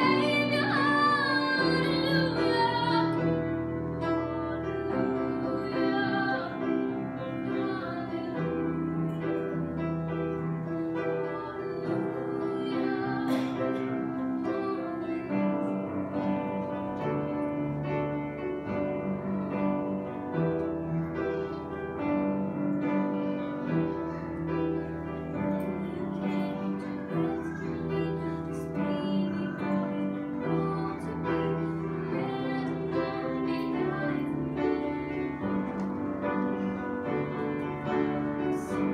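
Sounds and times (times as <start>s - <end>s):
woman singing a hymn: 0.0s - 9.2s, 11.0s - 16.5s, 25.4s - 36.6s, 37.2s - 38.9s
keyboard accompaniment: 0.0s - 38.9s.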